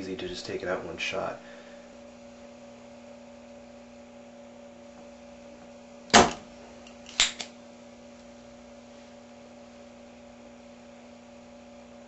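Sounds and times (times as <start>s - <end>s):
steady low hum: 0.0s - 12.0s
desoldering pump snapping: 5.0s - 7.6s.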